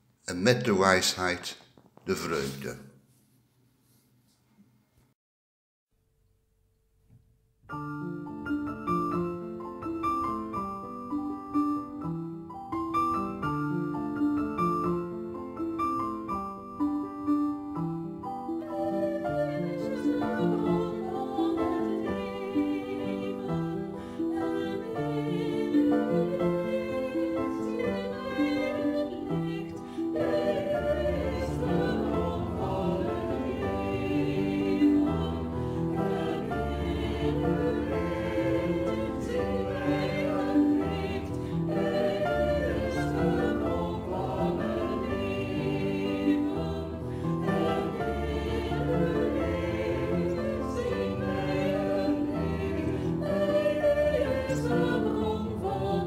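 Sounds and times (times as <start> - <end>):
choir singing: 18.5 - 56.0.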